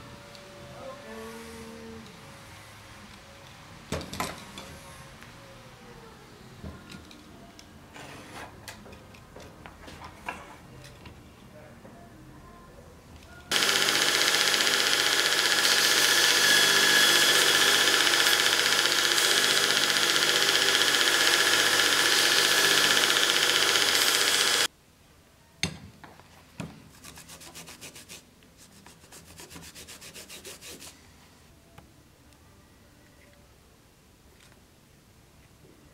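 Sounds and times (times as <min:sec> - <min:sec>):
belt sander running: 0:13.5 - 0:24.7.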